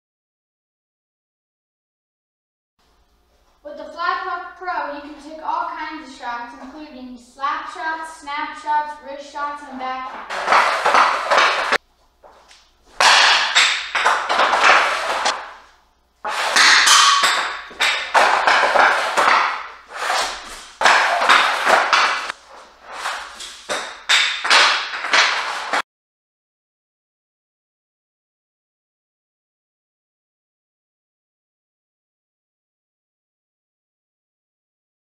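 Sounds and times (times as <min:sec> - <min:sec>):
hockey stick slapping pad: 0:09.8 - 0:25.8
puck cracking into net: 0:10.1 - 0:11.8, 0:12.9 - 0:15.6, 0:16.2 - 0:25.8.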